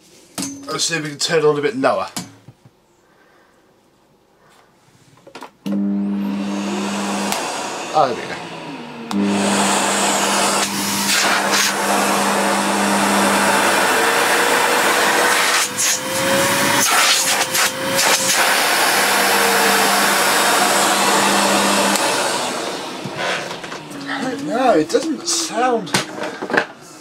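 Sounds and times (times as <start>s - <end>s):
vacuum cleaner running: 5.6s - 26.7s.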